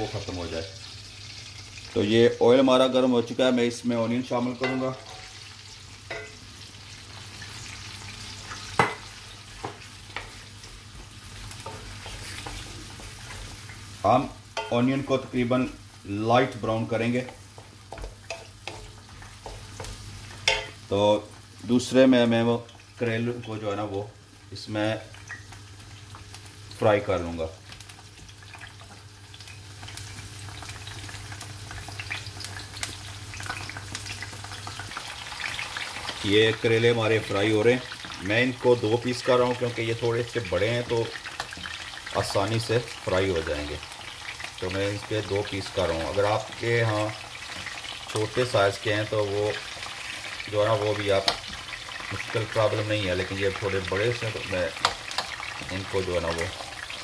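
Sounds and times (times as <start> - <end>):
onions sizzling in hot oil: 0.0 - 57.0.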